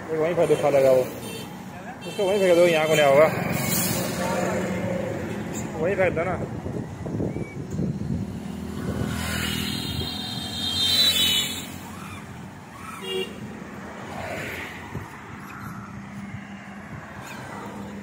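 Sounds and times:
low hum of traffic: 0.0 - 18.0
vehicle passing by: 3.2 - 5.8, 8.1 - 18.0
car horn toot: 9.6 - 11.7.

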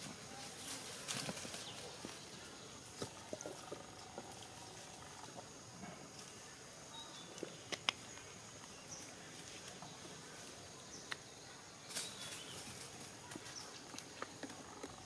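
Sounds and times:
dry leaves crackling and rustling: 0.0 - 3.0, 11.8 - 14.0.

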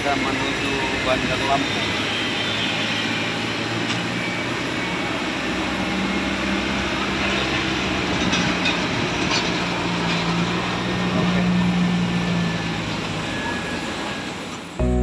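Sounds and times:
jet aircraft roar: 0.0 - 14.8
baggage tractor towing carts: 3.8 - 14.7
low hum: 14.8 - 15.0.

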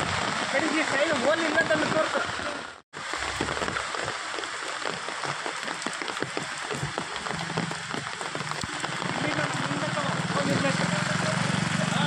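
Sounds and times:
rain falling on wet street: 0.0 - 12.0.

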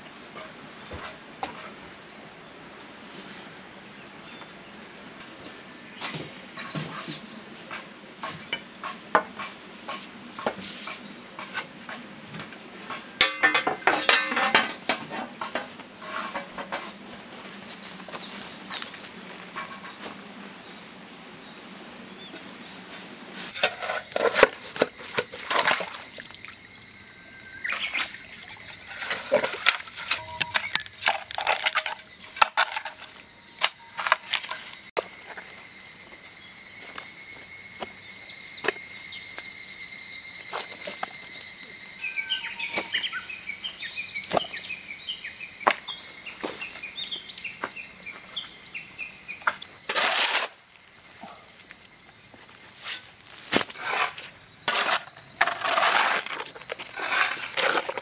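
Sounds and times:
insects droning: 0.0 - 58.0
hoe chopping wet soil: 52.9 - 58.0.

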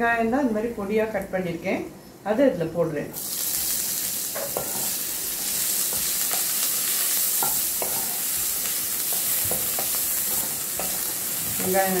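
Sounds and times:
onion sizzling in oil: 3.2 - 12.0.

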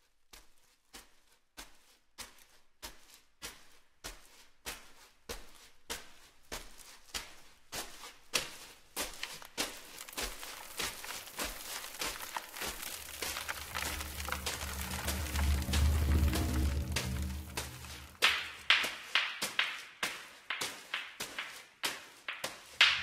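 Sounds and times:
rhythmic hissing percussion strokes: 13.0 - 19.0.

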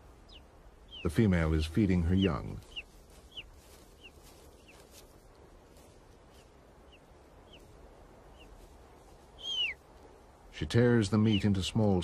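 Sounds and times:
eagle chicks begging peeps: 0.0 - 5.1, 6.3 - 8.6, 9.3 - 9.8, 11.0 - 11.8.

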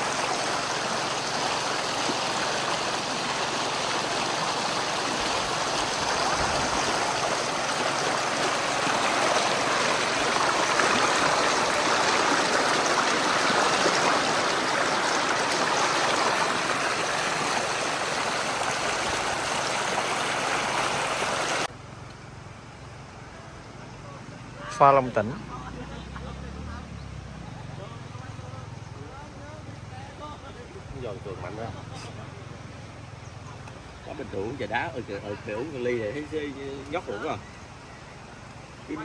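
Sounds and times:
stream rushing over rocks: 0.0 - 21.7.

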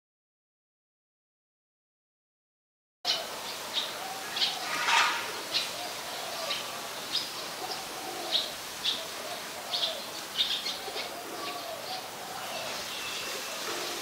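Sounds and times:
pigeon cooing: 3.1 - 14.0
small birds chirping: 5.4 - 14.0.

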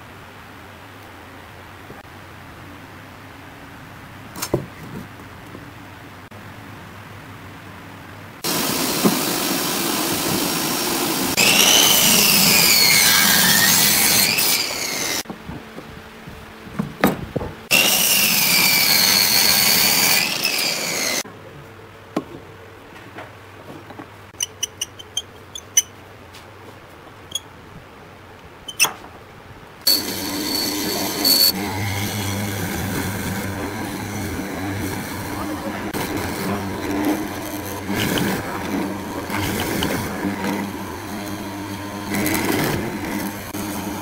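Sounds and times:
miter saw cutting wood: 8.4 - 15.2, 17.7 - 21.2, 29.9 - 44.0.

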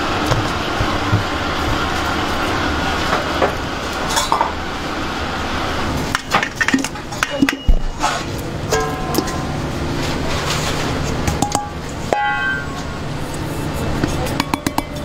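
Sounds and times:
steady background noise: 0.0 - 15.0
metal bowls clinking: 8.7 - 9.6.

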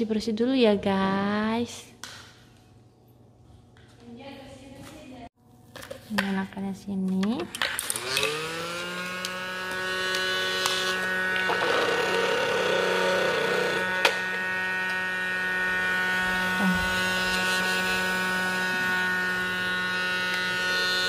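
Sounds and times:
toy vacuum motor whining: 7.6 - 21.0.

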